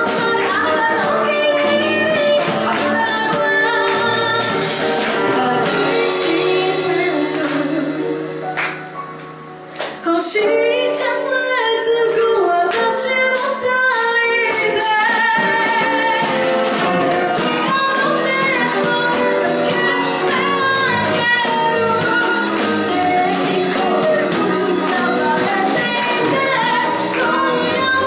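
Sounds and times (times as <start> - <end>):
acoustic guitar: 0.0 - 7.9, 14.4 - 28.0
woman singing: 0.0 - 8.5, 10.0 - 28.0
drums: 0.0 - 28.0.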